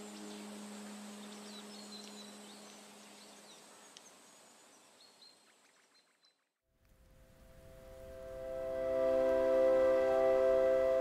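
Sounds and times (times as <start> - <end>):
ambient music: 0.0 - 3.4, 7.0 - 11.0
low held musical tone: 0.0 - 3.5, 7.0 - 11.0
bird chirps: 0.0 - 6.5.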